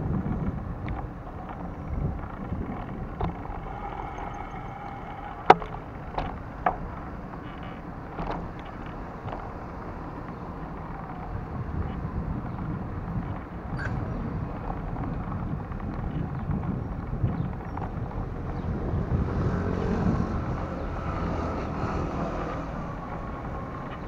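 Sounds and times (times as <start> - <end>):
traffic: 0.0 - 24.0
wind rumbling on microphone: 0.0 - 24.0
knocks and rattles from bumps: 0.3 - 13.5.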